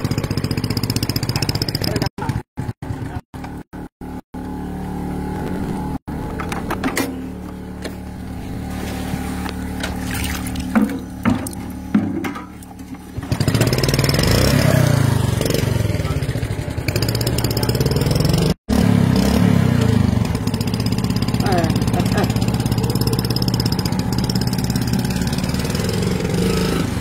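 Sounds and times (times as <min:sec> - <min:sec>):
motor engine running: 0:00.0 - 0:27.0.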